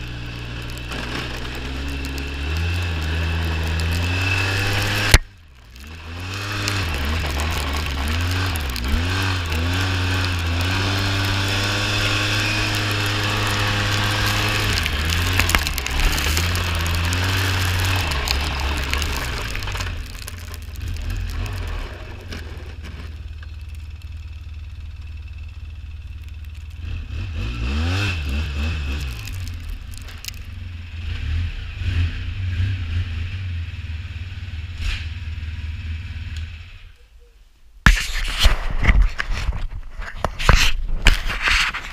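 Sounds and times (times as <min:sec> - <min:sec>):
small petrol engine running: 0:00.0 - 0:31.3.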